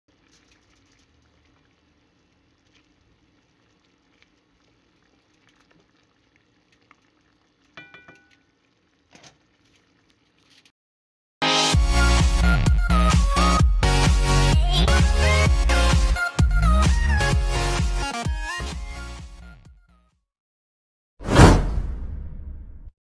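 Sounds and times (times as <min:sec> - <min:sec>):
stew bubbling in a pot: 0:00.1 - 0:10.7
wooden spatula stirring: 0:00.1 - 0:10.7
ringing clink: 0:07.8 - 0:08.4.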